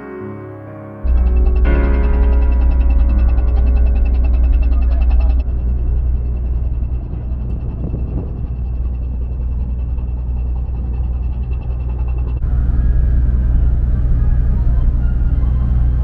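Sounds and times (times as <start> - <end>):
background music: 0.0 - 8.6
faint rapid ticking: 1.1 - 14.3
diesel engines droning: 1.1 - 16.0.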